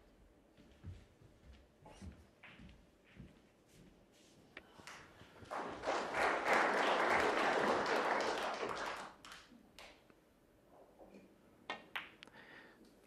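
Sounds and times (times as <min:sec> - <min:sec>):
crowd applauding: 0:05.4 - 0:09.9.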